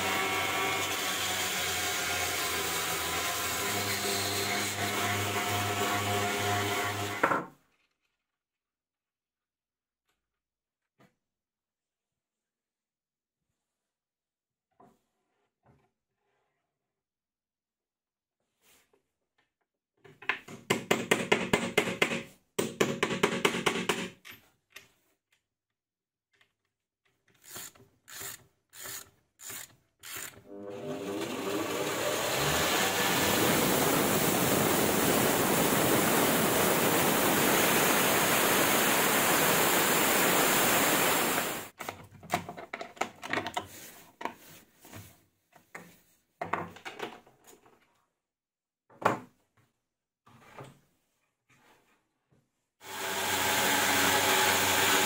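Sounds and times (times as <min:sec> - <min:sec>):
belt grinder motor running: 0:29.5 - 0:38.3, 0:52.8 - 0:55.0.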